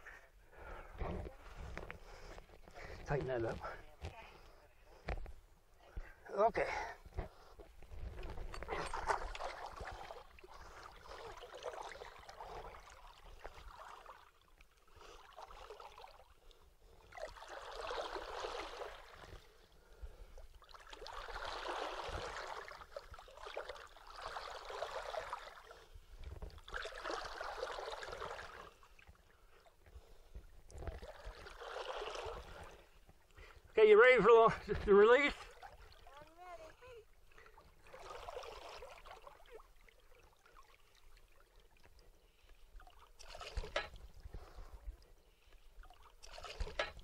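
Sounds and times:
river water splashing: 0:08.5 - 0:33.6, 0:34.8 - 0:44.7, 0:45.3 - 0:47.0.

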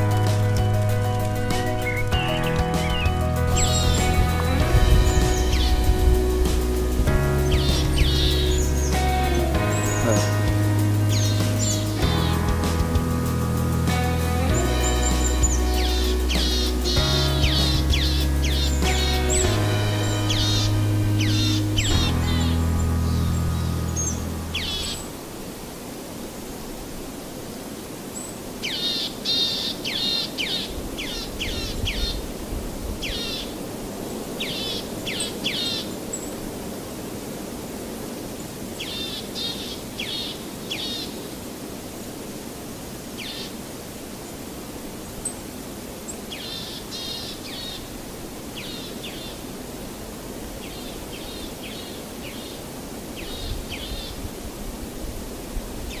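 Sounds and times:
bird calling in falling notes: 0:00.0 - 0:06.7, 0:07.4 - 0:12.4
small birds chirping: 0:00.0 - 0:25.2, 0:28.0 - 0:32.3, 0:33.0 - 0:36.5, 0:38.4 - 0:41.4, 0:43.1 - 0:43.6, 0:45.0 - 0:54.3
outdoor background hiss: 0:00.0 - 0:56.0.

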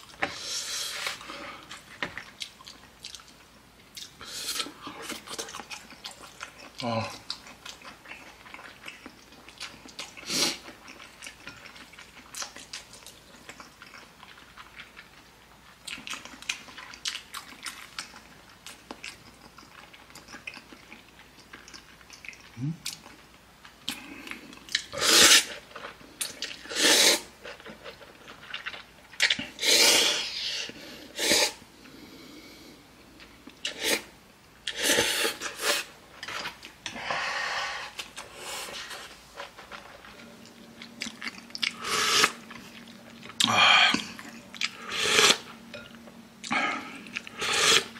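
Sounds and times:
person chewing noodles: 0:00.0 - 0:47.9
loud noodle slurps: 0:24.9 - 0:25.6, 0:26.4 - 0:27.3, 0:29.5 - 0:31.6, 0:33.6 - 0:34.1, 0:34.7 - 0:35.9, 0:41.8 - 0:42.4, 0:44.8 - 0:45.5, 0:47.3 - 0:47.9.

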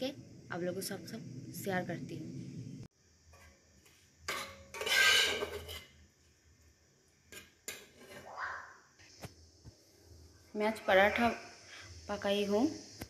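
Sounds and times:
metal spatula scraping pan: 0:04.3 - 0:06.0.

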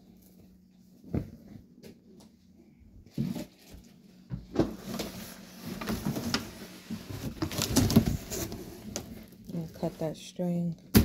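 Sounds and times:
cardboard rustling and scraping: 0:04.6 - 0:10.2.

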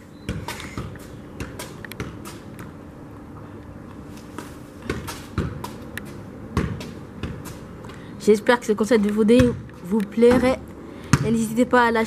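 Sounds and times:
football touches on foot: 0:04.2 - 0:07.9, 0:09.3 - 0:11.4.

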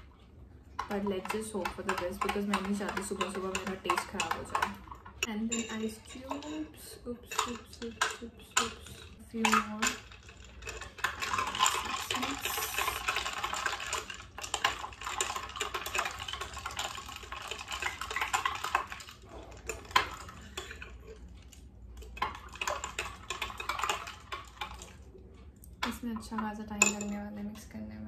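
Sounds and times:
spoon clinking ice in glass: 0:00.9 - 0:21.2.

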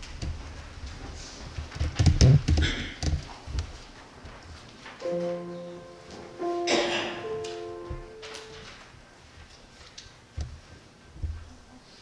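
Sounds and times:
grand piano held notes: 0:05.0 - 0:08.9.

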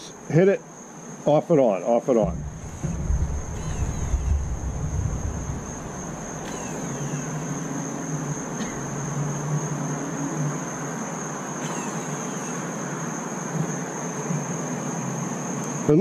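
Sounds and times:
cricket chirring: 0:00.0 - 0:16.0
electric awning motor humming: 0:02.2 - 0:15.3.

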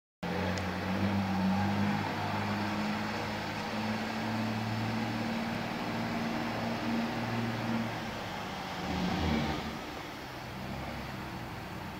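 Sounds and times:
car engine low drone: 0:00.2 - 0:11.9.

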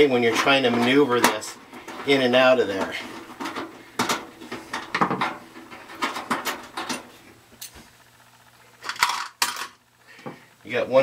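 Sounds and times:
metal scrape: 0:00.2 - 0:07.2.

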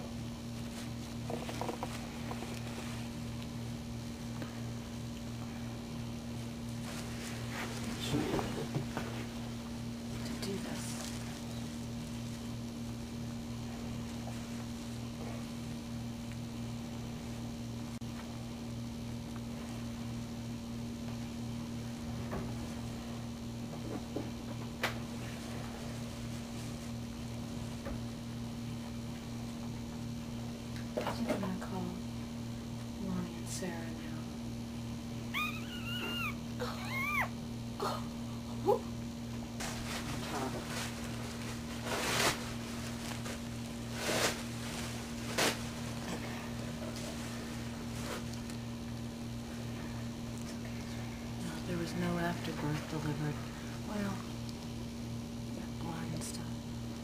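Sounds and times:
steady mechanical hum: 0:00.0 - 0:57.0
towels and bedding rustling: 0:06.4 - 0:09.6, 0:39.6 - 0:48.3.

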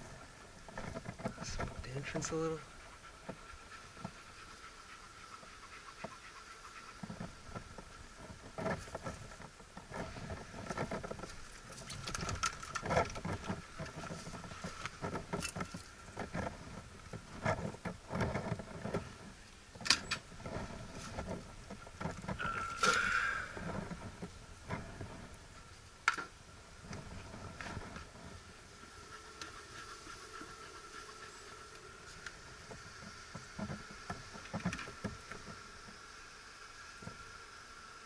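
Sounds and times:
faint steady high whine: 0:00.0 - 0:38.0
bellows smoker puffs: 0:22.4 - 0:24.2.

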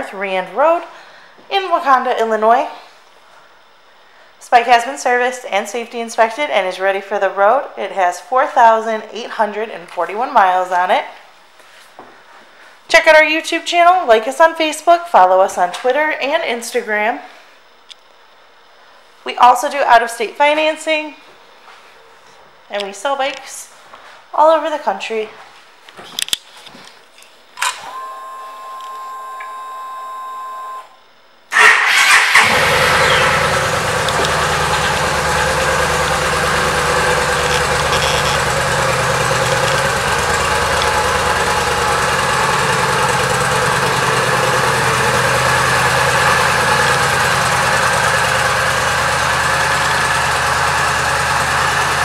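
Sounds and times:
fuel pump whine: 0:27.8 - 0:52.0
motorcycle engine idling: 0:32.0 - 0:52.0.

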